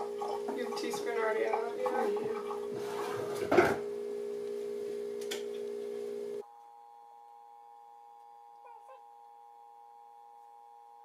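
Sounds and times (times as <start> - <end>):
hum of held tones: 0.0 - 11.0.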